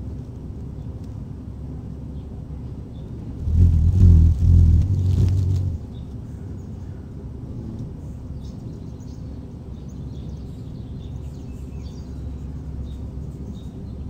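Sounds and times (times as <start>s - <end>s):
low rumble: 3.3s - 6.2s.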